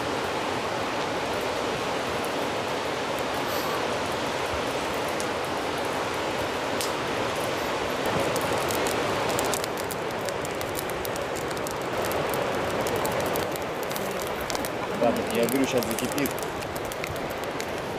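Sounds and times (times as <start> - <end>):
river rapids rushing: 0.0 - 17.9.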